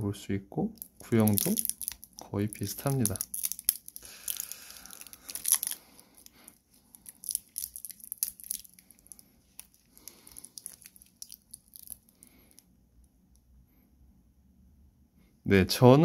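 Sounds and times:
cloth and plastic film rustling: 0:01.0 - 0:11.9.

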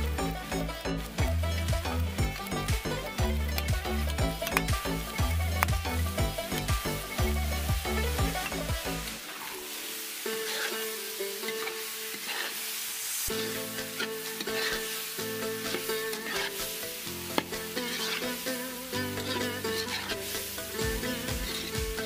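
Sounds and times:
background music: 0:00.0 - 0:12.4, 0:13.2 - 0:22.0
food sizzling in a pot: 0:00.0 - 0:22.0
spatula scraping a pot: 0:10.3 - 0:10.9, 0:11.6 - 0:12.6, 0:13.3 - 0:21.8.

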